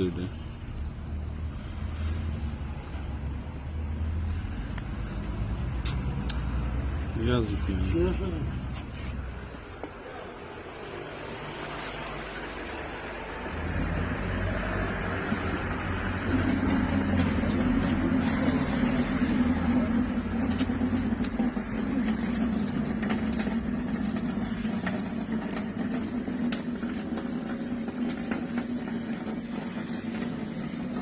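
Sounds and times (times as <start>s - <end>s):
tap water running into steel sink: 15.3s - 31.0s.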